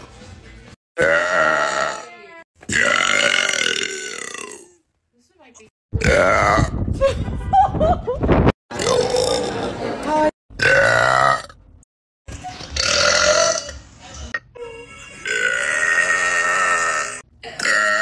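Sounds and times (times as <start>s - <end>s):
woman burping loudly: 1.0s - 4.8s, 6.0s - 6.8s, 8.7s - 9.7s, 10.6s - 11.6s, 12.8s - 18.0s.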